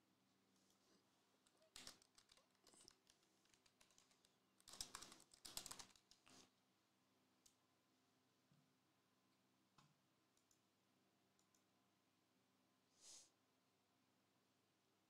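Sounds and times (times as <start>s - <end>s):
faint clicks: 11.4s - 11.7s.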